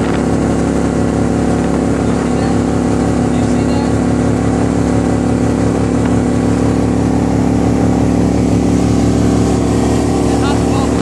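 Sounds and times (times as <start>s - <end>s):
boat motor droning: 0.0s - 11.0s.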